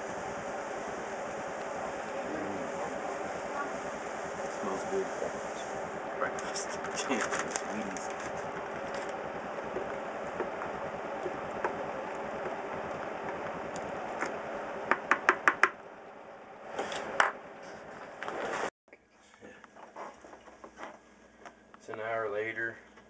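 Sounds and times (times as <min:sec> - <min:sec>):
ladle stirring wet grain: 0:00.0 - 0:14.9.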